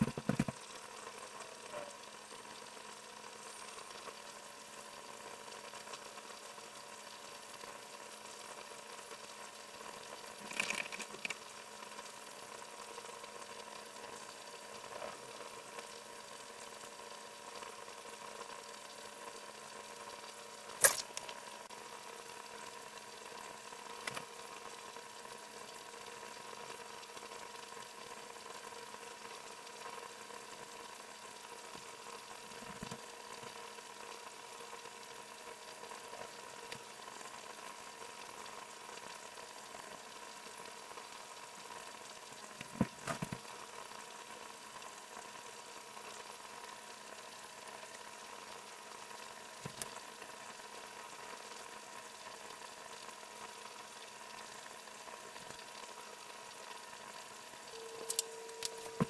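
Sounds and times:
faint steady hum: 0.0 - 59.0
low steady hiss: 0.0 - 59.0
sharp click: 20.8 - 21.3.

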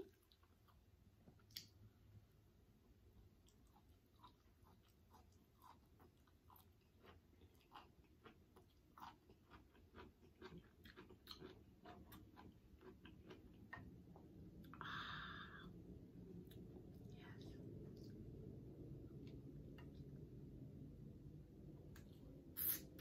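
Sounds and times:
person chewing and sucking: 3.4 - 14.8, 22.6 - 23.0
short hiss: 22.6 - 23.0.

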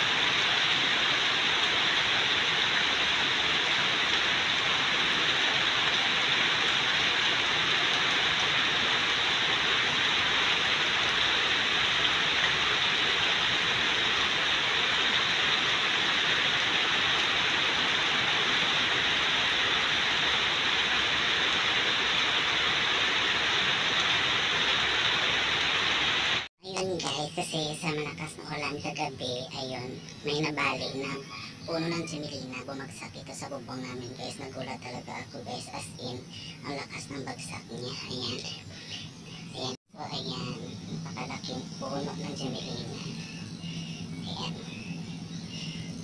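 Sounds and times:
heavy rain on foliage: 0.0 - 26.5.

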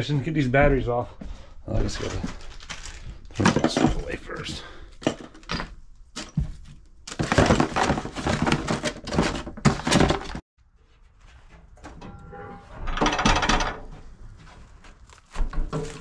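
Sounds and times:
cardboard box rustling and scraping: 6.2 - 10.4, 14.4 - 16.0.

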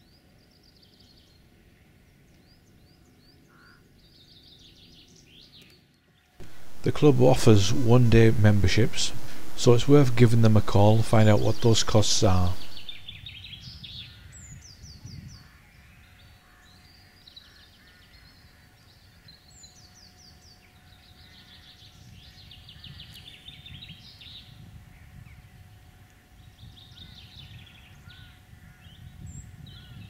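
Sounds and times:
faint low rumble: 6.4 - 13.2
songbirds trilling: 6.4 - 25.8.

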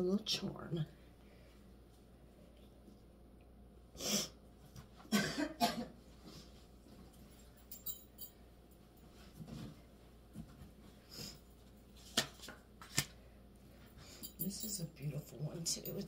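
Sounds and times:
woman coughing: 5.1 - 6.0.

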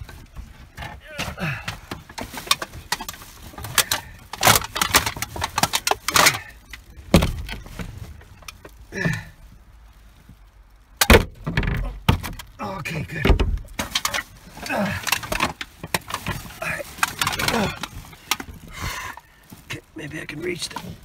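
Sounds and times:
truck door hardware rattling: 0.0 - 8.6, 11.0 - 18.6.

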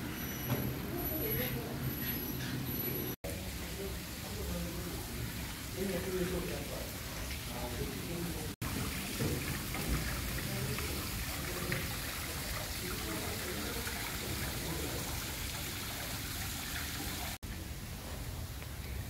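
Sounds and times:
water trickling: 3.3 - 17.5.

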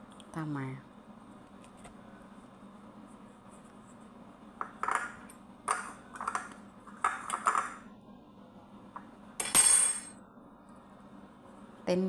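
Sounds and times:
dishes and utensils clattering: 4.7 - 7.8.

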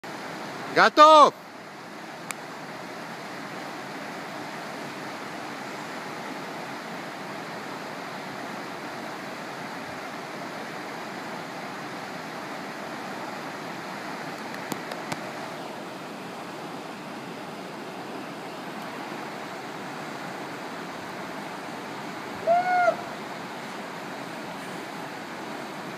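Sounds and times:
waterfall rushing into pool: 0.1 - 25.9.

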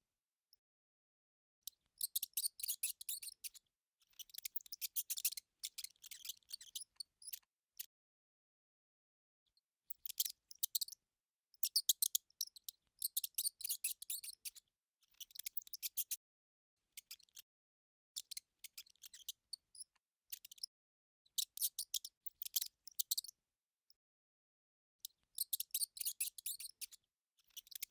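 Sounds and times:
mouse clicking and scratching: 1.7 - 7.5, 9.9 - 11.0, 11.6 - 16.2, 16.9 - 17.5, 18.2 - 20.7, 21.4 - 23.4, 25.0 - 27.9.

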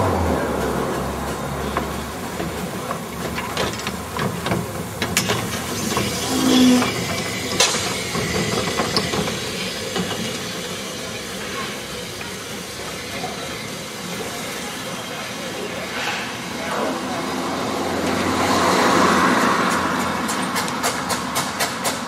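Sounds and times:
steam hissing: 0.0 - 22.0
metallic clanks and knocks: 1.6 - 10.5.

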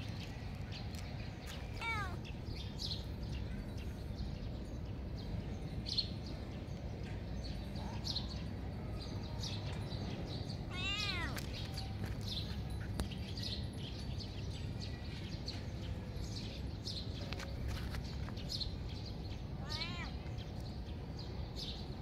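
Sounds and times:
kitten meowing: 1.8 - 2.2, 19.6 - 20.1.

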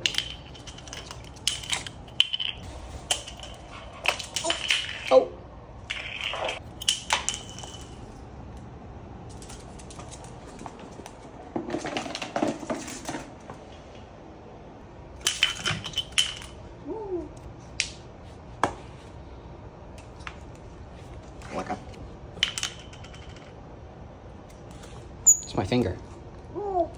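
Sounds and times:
bottle cap clattering on floor: 5.9 - 8.0, 15.2 - 16.6.

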